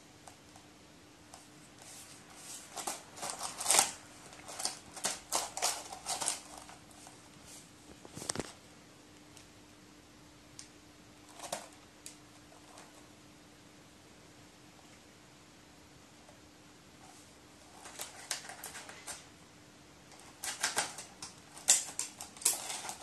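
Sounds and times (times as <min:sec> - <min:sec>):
crow tearing at crumpled paper: 0:01.8 - 0:07.1, 0:17.7 - 0:19.2, 0:20.1 - 0:23.0.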